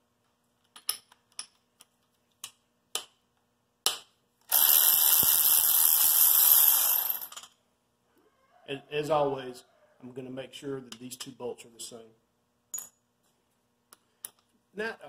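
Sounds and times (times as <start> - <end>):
ratchet ratcheting: 4.5 - 7.5.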